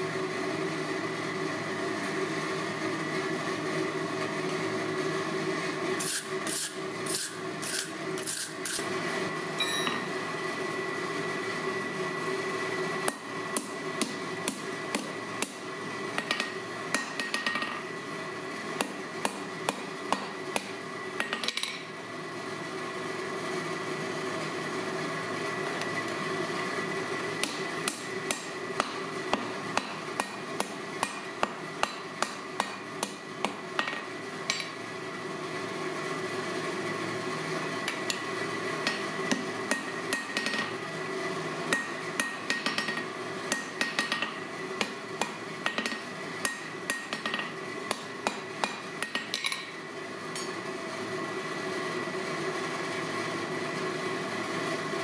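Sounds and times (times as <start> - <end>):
hammer striking steel on anvil: 16.2 - 17.8, 18.8 - 21.8, 27.4 - 34.8, 37.9 - 40.8, 41.7 - 50.6.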